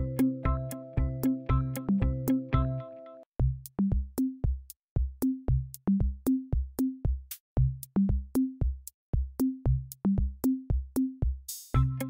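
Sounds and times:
electronic drum-machine beat: 0.0s - 2.8s, 3.4s - 12.0s.

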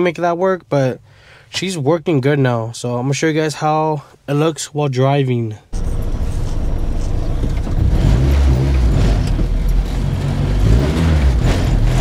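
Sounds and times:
low road noise: 5.7s - 12.0s
car engine running: 5.8s - 12.0s.

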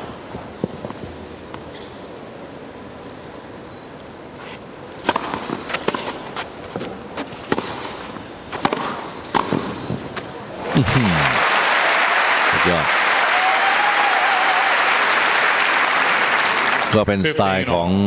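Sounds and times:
racket hitting tennis ball: 5.0s - 7.9s, 8.5s - 10.3s
crowd hush: 10.6s - 16.9s.

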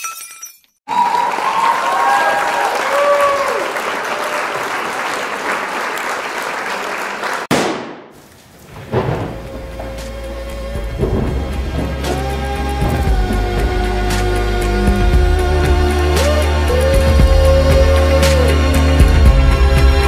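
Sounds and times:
crowd applauding and cheering: 0.9s - 7.5s
music: 9.1s - 20.0s.

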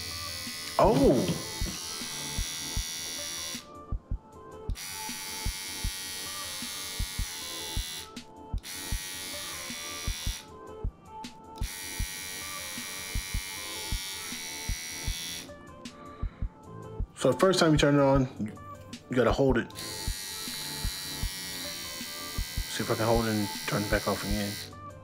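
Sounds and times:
hair trimmer buzzing: 0.0s - 3.7s, 4.7s - 10.5s, 11.6s - 15.5s, 19.7s - 24.8s.

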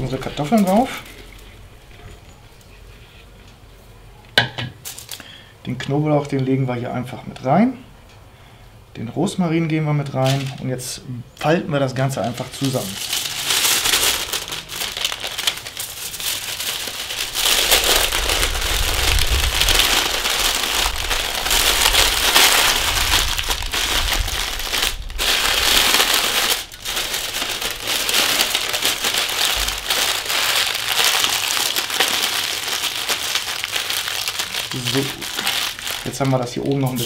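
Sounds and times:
foil and paper crinkling: 0.0s - 1.6s, 4.8s - 5.4s, 10.1s - 10.8s, 11.4s - 37.0s.

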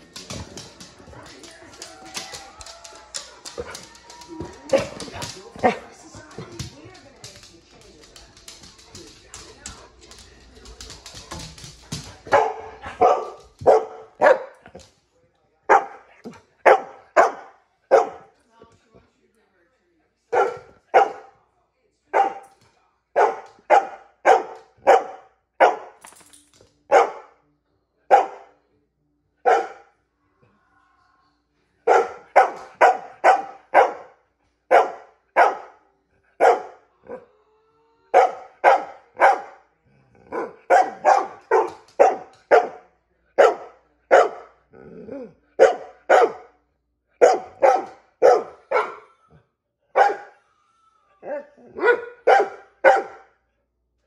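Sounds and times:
dog barking: 12.3s - 14.8s, 15.7s - 18.3s, 20.3s - 21.4s, 22.1s - 22.4s, 23.2s - 26.0s, 26.9s - 27.4s, 28.1s - 28.5s, 29.4s - 29.9s, 31.8s - 35.8s, 36.4s - 37.3s, 38.1s - 39.6s, 40.3s - 46.6s, 47.2s - 49.2s, 49.9s - 50.4s, 51.2s - 53.3s.

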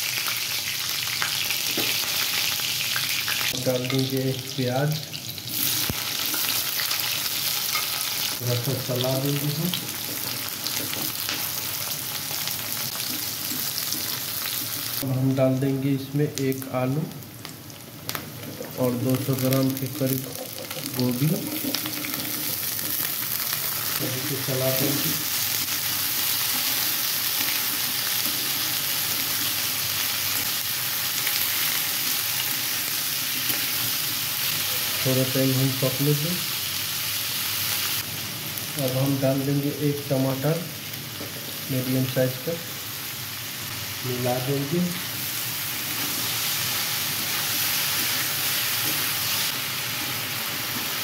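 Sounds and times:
vegetables sizzling in hot oil: 0.0s - 15.0s, 16.4s - 51.0s
metal spatula stirring: 7.6s - 8.1s.

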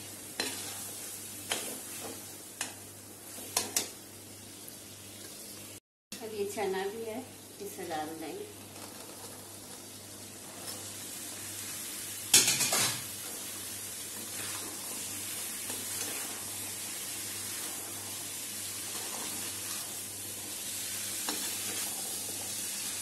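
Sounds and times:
spices sizzling in a pan: 0.0s - 23.0s
spatula stirring chickpeas: 14.1s - 23.0s.

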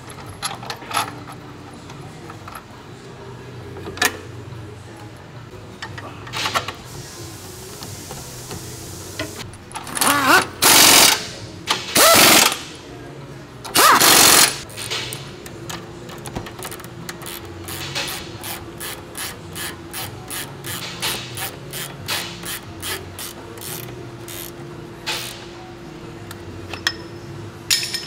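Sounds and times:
hand ratchet clicking: 9.7s - 11.2s, 12.0s - 12.6s, 13.7s - 15.8s, 16.6s - 25.4s.

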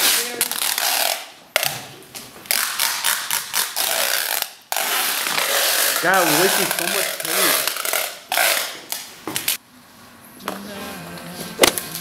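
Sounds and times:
duct tape pulled off roll: 2.5s - 9.6s.

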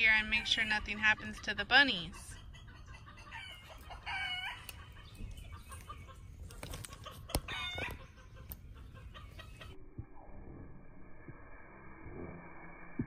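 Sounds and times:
chicken clucking: 0.3s - 9.8s.

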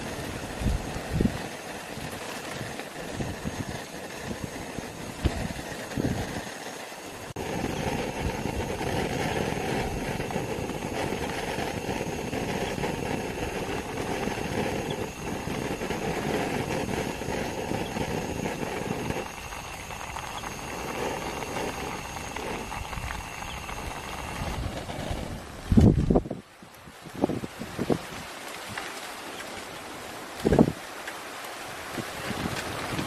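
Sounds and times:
soup bubbling: 0.0s - 25.6s
gas stove flame: 0.0s - 29.5s.

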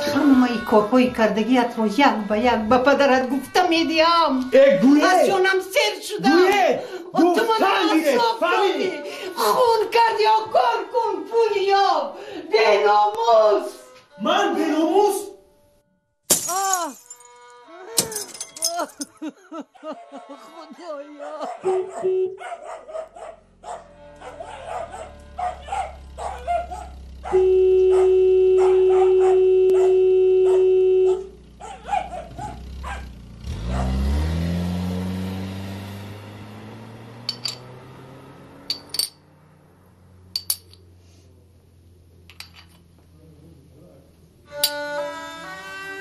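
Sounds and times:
violin music: 0.0s - 16.0s, 17.1s - 18.0s, 19.9s - 21.5s, 23.5s - 26.2s, 44.3s - 46.0s
china shards clinking: 16.3s - 19.1s, 37.2s - 37.7s, 38.7s - 39.2s, 40.4s - 40.9s, 42.3s - 42.9s
dog barking: 19.7s - 20.4s, 21.1s - 34.2s
loud steady tone: 22.0s - 22.4s, 27.3s - 31.4s.

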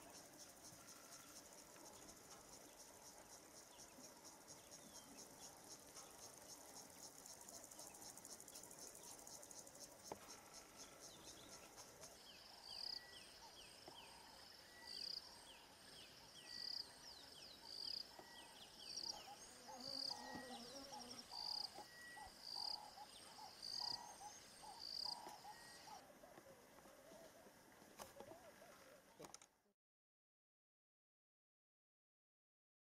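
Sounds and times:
insects: 0.0s - 29.6s
faint chorus of wild birds: 0.0s - 29.7s
lower warbling bird calls: 3.2s - 29.2s.

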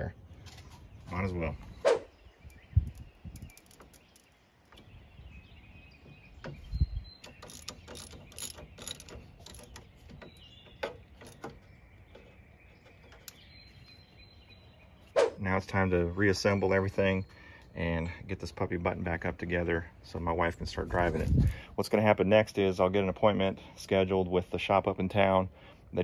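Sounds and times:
ratchet wrench clicking: 2.9s - 4.3s, 7.2s - 9.8s
tool knocking against metal fitting: 6.4s - 12.3s.

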